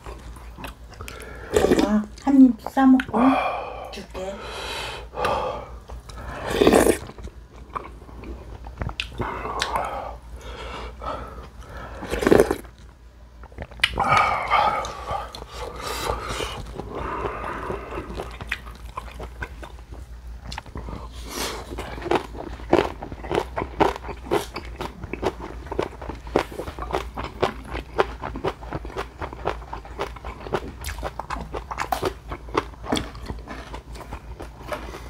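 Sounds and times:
chewing and smacking: 0.0s - 3.1s, 5.9s - 10.0s, 11.4s - 35.0s
slurping soup from a spoon: 6.4s - 7.2s, 12.0s - 12.7s.

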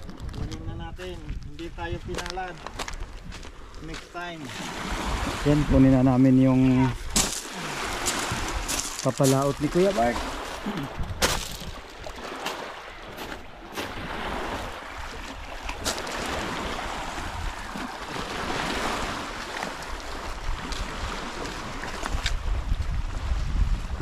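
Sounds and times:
wind buffeting microphone: 0.0s - 4.0s, 4.7s - 24.0s
footsteps on gravel: 0.0s - 4.3s, 7.0s - 14.8s
waves washing on pebbly shore: 3.5s - 23.0s.

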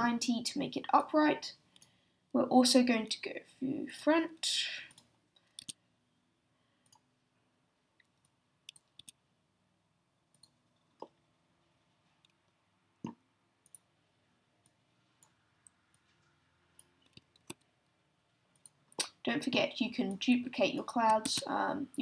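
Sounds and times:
computer mouse clicks: 4.9s - 5.8s, 6.8s - 7.1s, 8.0s - 9.2s, 10.3s - 11.2s, 13.0s - 13.9s, 14.6s - 17.7s, 18.5s - 19.2s.

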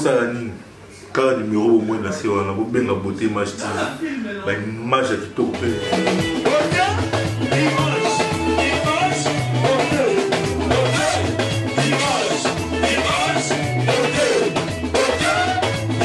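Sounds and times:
upbeat music with drum beat: 5.4s - 16.0s.

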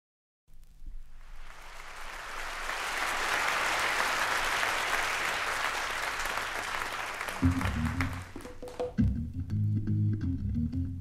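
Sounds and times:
audience applauding: 1.1s - 9.0s.

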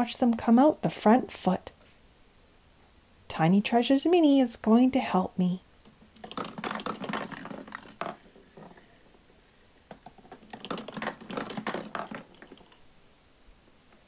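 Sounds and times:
plastic balls clattering down toy: 5.9s - 12.9s.

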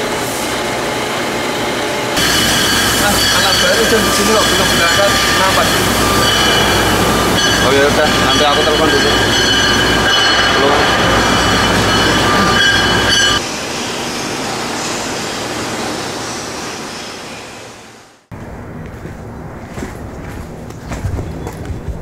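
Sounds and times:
low machine hum: 0.0s - 16.4s, 18.3s - 22.0s
machinery metallic squeal: 2.2s - 17.9s.

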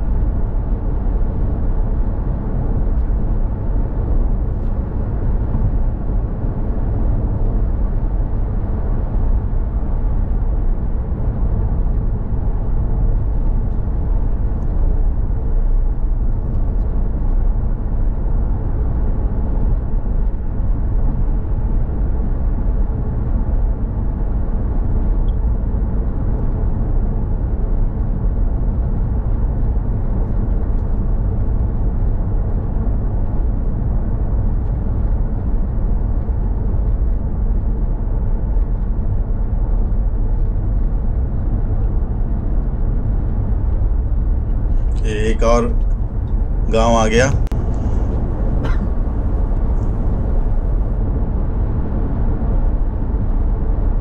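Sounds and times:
car driving rumble: 0.0s - 23.4s, 28.4s - 54.0s.

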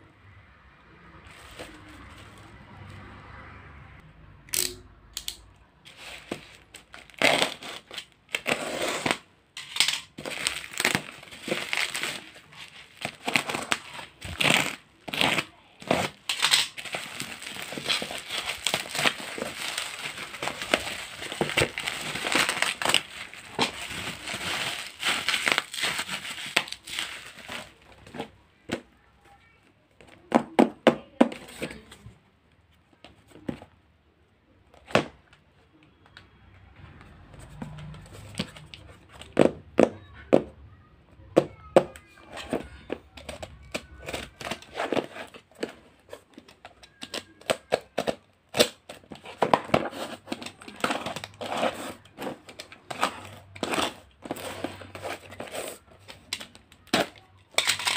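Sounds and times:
bubble wrap crinkling: 5.9s - 28.3s, 42.6s - 57.9s.

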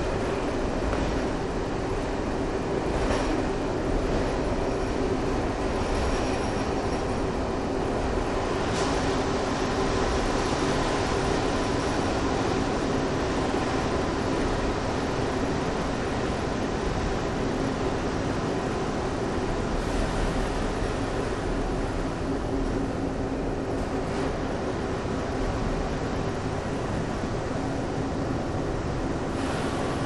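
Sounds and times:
diesel railcar humming drone: 0.0s - 30.0s.

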